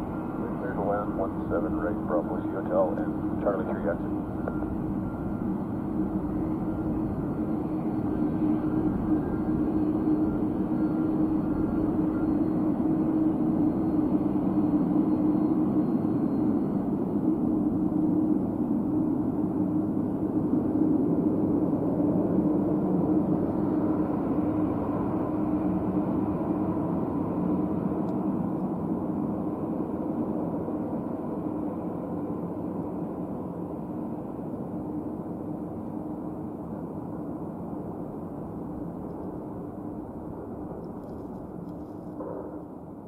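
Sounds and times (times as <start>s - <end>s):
jet engines drone: 0.0s - 43.0s.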